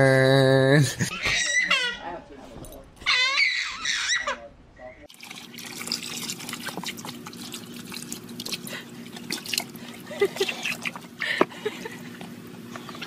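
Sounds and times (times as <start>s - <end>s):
water splashing and dripping: 5.1s - 11.2s
dog lapping water: 5.1s - 13.0s.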